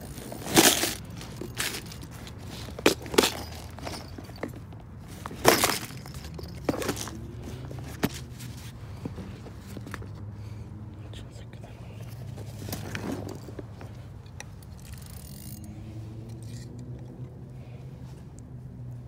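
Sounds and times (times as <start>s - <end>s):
plastic box rustling and knocking: 0.2s - 10.1s.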